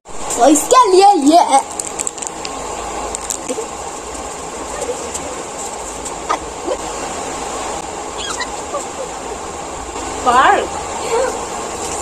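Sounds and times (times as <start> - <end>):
background hiss: 0.0 - 12.0.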